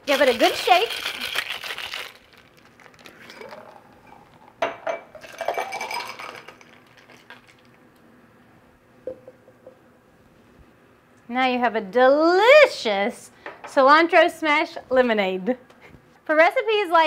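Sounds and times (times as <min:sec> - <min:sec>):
ice rattling in cocktail shaker: 0:00.0 - 0:04.4, 0:05.2 - 0:07.7
ice and liquid pouring into glass: 0:00.1 - 0:04.2, 0:05.2 - 0:07.7.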